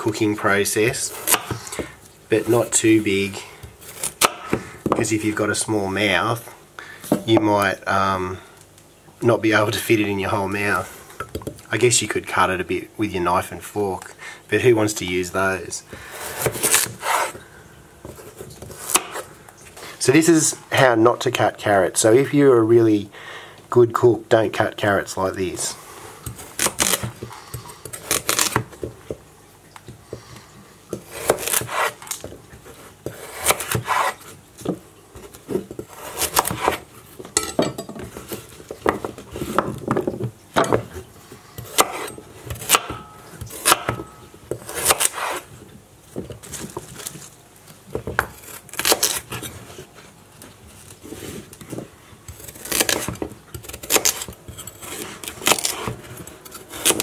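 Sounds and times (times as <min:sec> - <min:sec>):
knife chopping on wooden board: 0:01.1 - 0:01.9, 0:04.0 - 0:05.0, 0:18.0 - 0:19.2, 0:26.3 - 0:29.0, 0:30.9 - 0:32.3, 0:33.0 - 0:36.8, 0:41.6 - 0:45.4.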